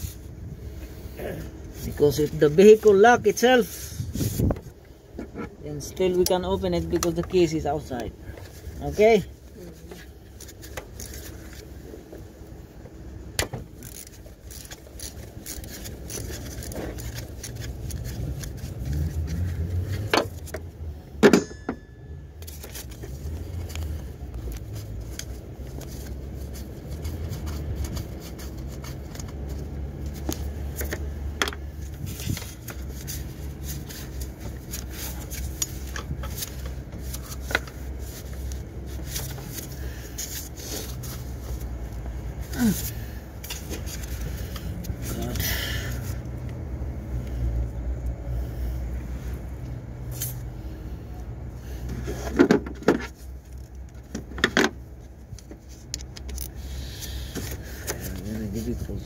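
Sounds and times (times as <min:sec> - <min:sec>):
socket wrench metal clicks and scrapes: 0:55.4 - 0:56.6.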